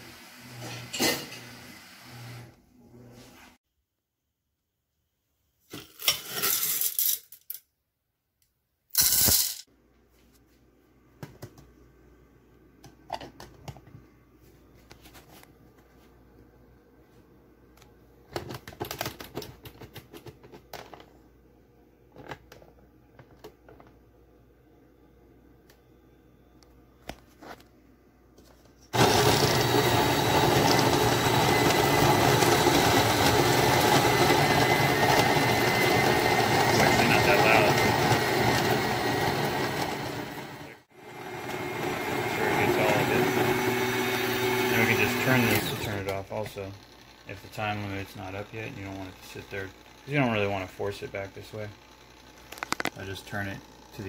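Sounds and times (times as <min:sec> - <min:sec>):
coffee grinder grinding beans: 0:00.0 - 0:02.5, 0:05.7 - 0:07.4, 0:09.0 - 0:09.7, 0:28.9 - 0:54.0
coffee beans rattling in metal canister: 0:09.0 - 0:09.6.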